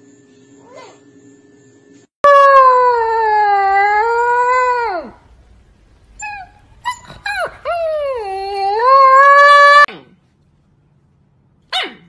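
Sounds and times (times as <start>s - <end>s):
puppy howling: 2.2s - 5.2s, 6.2s - 9.9s
puppy yelping: 11.7s - 12.0s.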